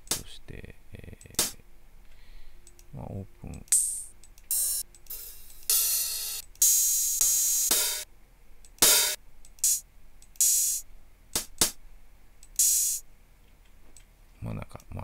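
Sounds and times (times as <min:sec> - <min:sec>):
open hi-hat hits: 0:01.2 - 0:01.6, 0:03.6 - 0:08.1, 0:08.8 - 0:11.8, 0:12.5 - 0:13.1.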